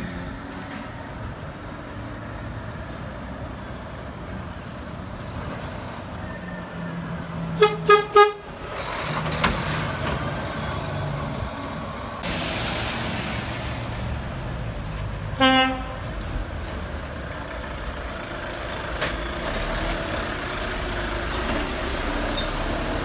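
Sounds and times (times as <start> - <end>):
truck horn blasts: 7.6 - 8.5, 15.4 - 16.1
truck diesel engine driving past: 8.4 - 23.0.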